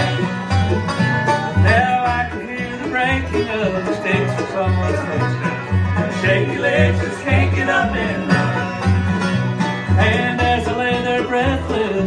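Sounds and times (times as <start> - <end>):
acoustic guitar: 0.0 - 12.0
banjo: 0.0 - 12.0
fiddle: 0.0 - 12.0
mandolin: 0.0 - 12.0
upright bass plucking: 0.0 - 12.0.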